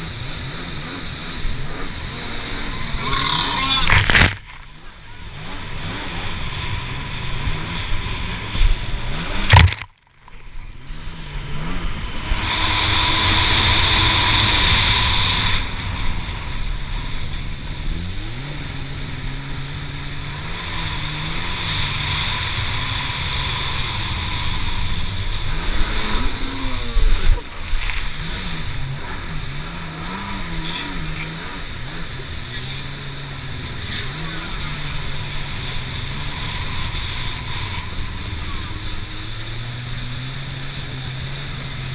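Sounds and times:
jet ski engine: 0.0s - 41.9s
rushing water and spray: 0.0s - 41.9s.

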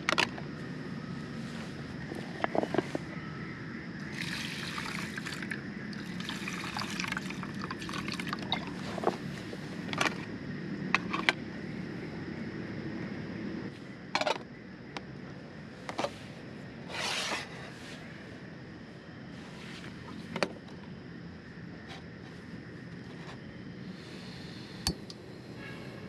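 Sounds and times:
water pouring into metal tin: 4.1s - 8.7s.

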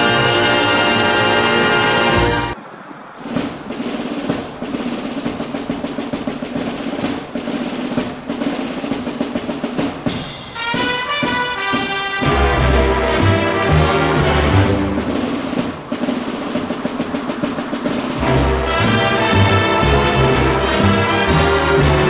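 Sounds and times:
snare drum roll: 0.0s - 2.6s, 3.2s - 22.0s
sustained pitched notes: 18.2s - 22.0s.

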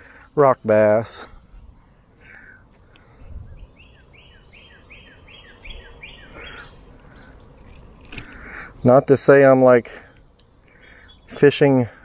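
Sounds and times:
low background noise: 0.0s - 12.0s
songbird singing two-part notes: 3.4s - 7.6s, 10.1s - 11.8s.

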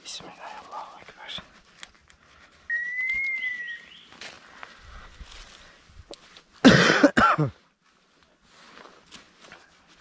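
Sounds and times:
person coughing: 6.6s - 7.6s.

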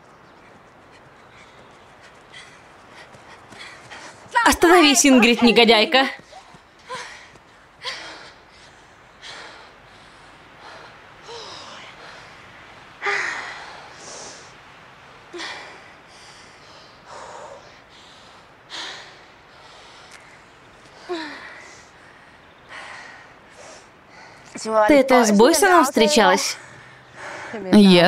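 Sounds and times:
heavy panting: 0.7s - 4.5s.

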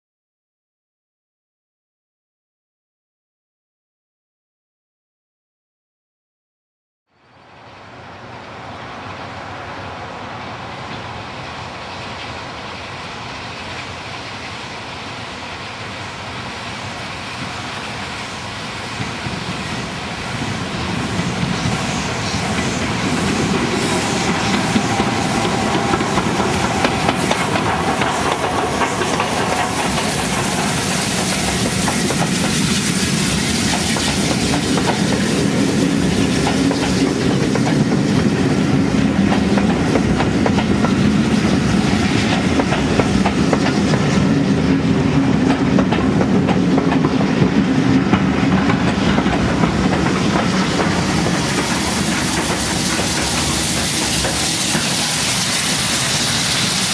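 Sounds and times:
steam locomotive hissing: 7.6s - 56.9s.

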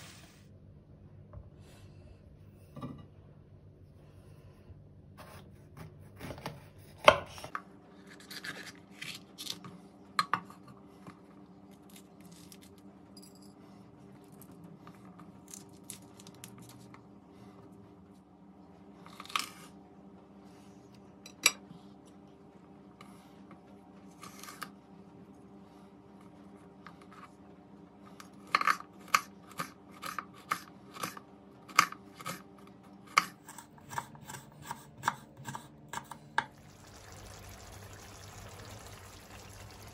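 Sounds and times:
knife cutting pepper: 33.1s - 36.2s.

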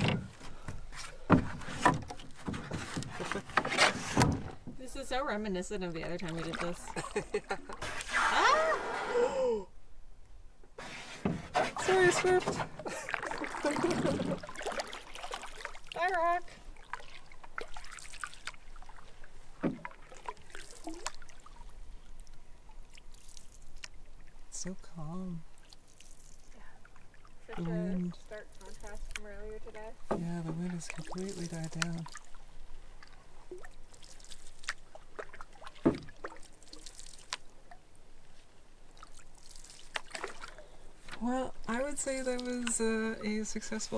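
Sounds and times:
paddle strokes in water: 0.0s - 4.7s, 6.0s - 9.2s, 10.8s - 24.5s, 25.5s - 43.9s
water dripping off paddle: 11.8s - 16.1s, 16.7s - 24.5s, 25.5s - 38.0s, 38.9s - 43.6s.

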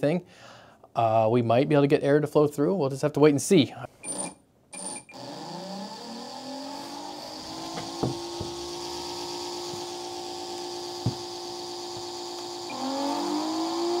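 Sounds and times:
motor-driven fan whirring: 5.2s - 14.0s.

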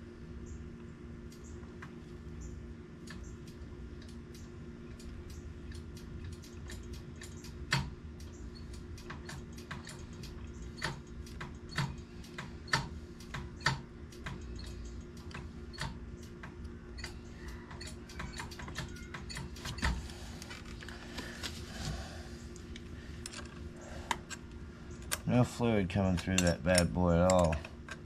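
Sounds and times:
steady low hum: 0.0s - 28.0s
small tools clicking and tapping: 3.1s - 21.5s, 22.5s - 25.3s, 26.0s - 28.0s.

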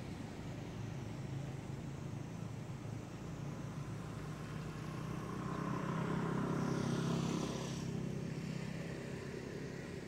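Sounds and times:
vehicle engine passing: 3.2s - 10.0s.

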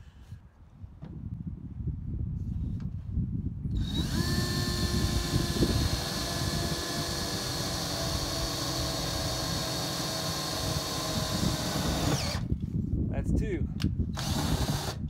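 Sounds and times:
drill motor whining under load: 3.7s - 12.5s, 14.1s - 15.0s.

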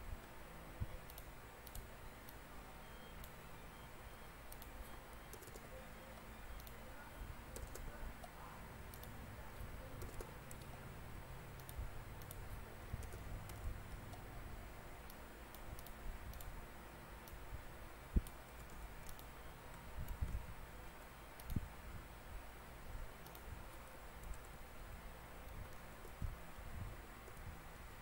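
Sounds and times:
mouse clicks: 0.2s - 2.4s, 4.5s - 6.8s, 7.5s - 10.8s, 11.6s - 14.3s, 15.0s - 16.6s, 17.2s - 17.5s, 18.1s - 20.4s, 21.0s - 21.7s, 23.2s - 24.6s, 25.4s - 26.4s
keyboard keystrokes: 4.5s - 5.8s, 7.5s - 8.3s, 8.9s - 10.8s, 11.6s - 14.3s, 18.2s - 20.4s, 23.2s - 24.6s.

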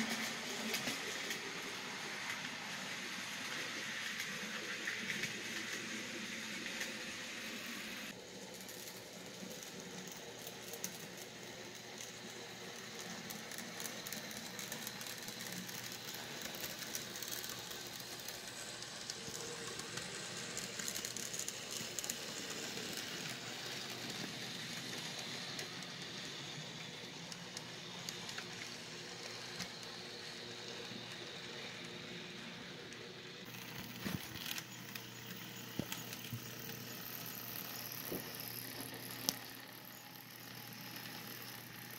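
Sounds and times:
model trains rolling rattle: 0.0s - 41.9s
small clicks of train wheels: 0.0s - 41.9s.

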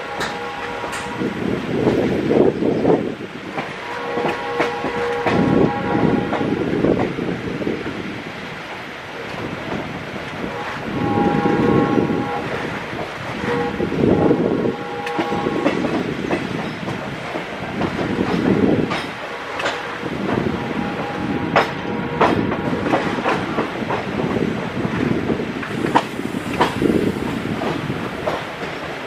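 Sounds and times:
train horn: 0.0s - 1.6s, 3.7s - 6.7s, 10.4s - 16.1s, 19.6s - 23.4s
train wheels clacking on rails: 0.0s - 8.0s, 8.6s - 29.0s.

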